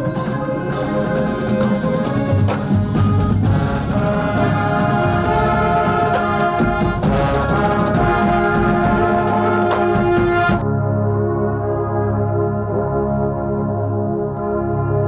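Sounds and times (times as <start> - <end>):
brass holding long chords: 0.0 - 15.0
drum strikes: 1.2 - 10.6.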